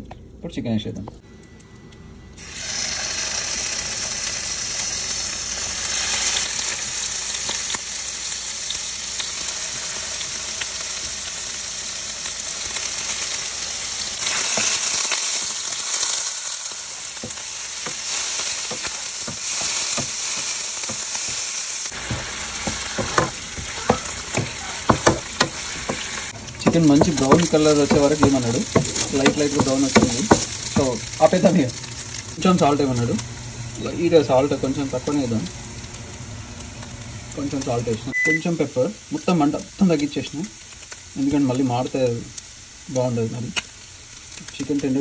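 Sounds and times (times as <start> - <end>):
chicken sizzling in a pan: 2.4 - 45.0
pan stirring clicks and scrapes: 17.2 - 32.7.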